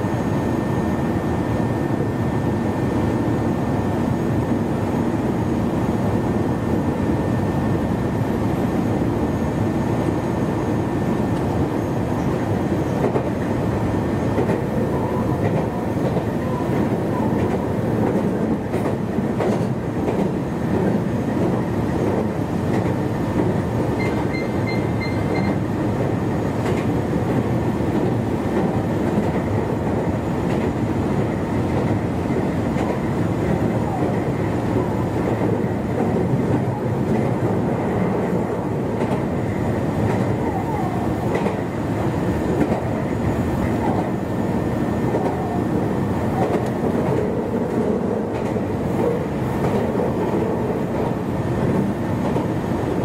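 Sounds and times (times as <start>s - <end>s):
train wheels rumbling on rail: 0.0s - 53.0s
rail-joint clicks: 13.0s - 13.4s, 15.4s - 25.6s, 26.6s - 29.5s, 38.9s - 39.3s, 41.3s - 41.6s, 42.6s - 42.9s, 46.4s - 52.5s.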